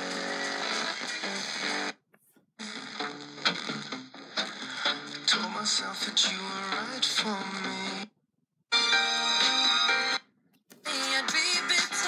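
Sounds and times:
radio music with voice: 0:02.6 - 0:08.1, 0:10.7 - 0:12.0.

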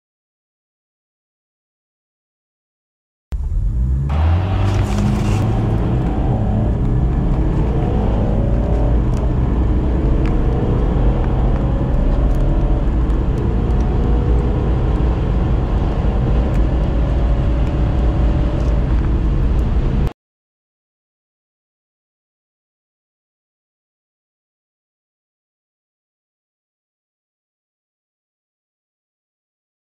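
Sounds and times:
diesel car accelerating: 0:03.4 - 0:20.1.

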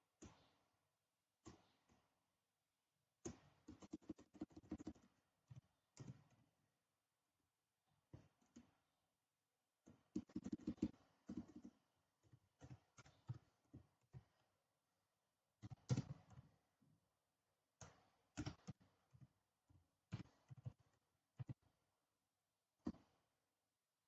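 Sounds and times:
keyboard keys typing: 0:03.4 - 0:05.1, 0:10.2 - 0:11.8, 0:15.6 - 0:16.5, 0:17.8 - 0:18.9.

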